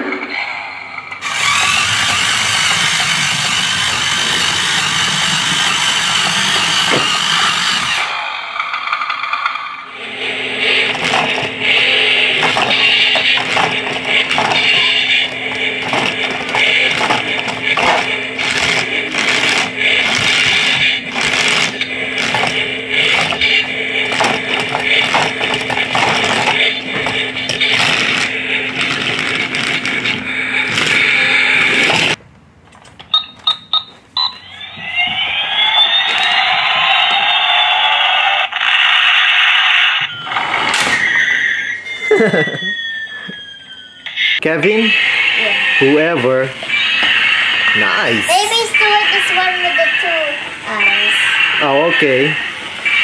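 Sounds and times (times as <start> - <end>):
toy electric motor whining: 1.2 - 32.2, 34.4 - 53.0.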